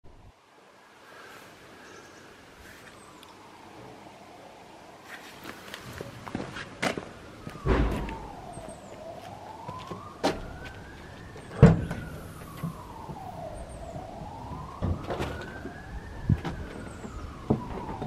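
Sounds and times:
footsteps on paving: 0:05.1 - 0:08.3, 0:08.9 - 0:11.5
emergency siren wailing: 0:07.2 - 0:18.0
sharp knocks: 0:07.6 - 0:08.4.

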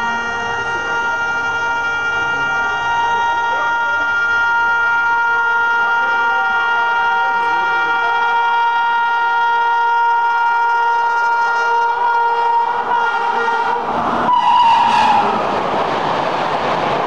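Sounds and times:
train rushing past: 0:00.0 - 0:08.6, 0:12.4 - 0:17.0
locomotive horn blast: 0:00.0 - 0:15.4.

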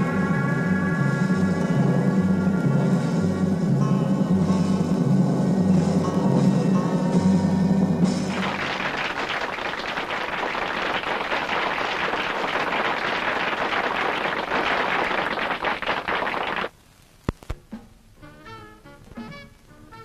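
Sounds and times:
music: 0:00.0 - 0:11.8, 0:17.5 - 0:20.0
audience applauding: 0:08.3 - 0:16.7.

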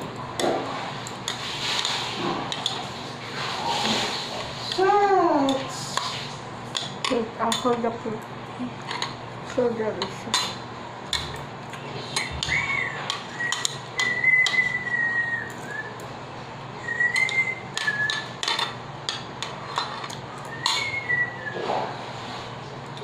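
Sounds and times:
wavering whistled note: 0:12.4 - 0:16.0, 0:16.8 - 0:18.3, 0:20.5 - 0:21.6
utensils clinking on ceramic bowl: 0:17.1 - 0:21.0.

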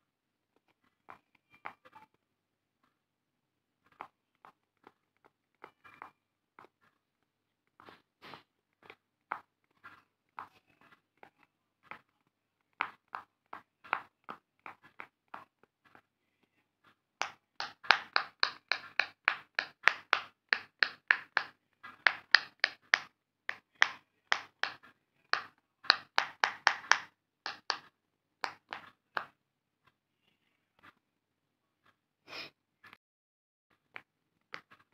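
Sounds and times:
pop-it fidget toy bubbles popping: 0:17.2 - 0:24.8, 0:25.4 - 0:29.4.

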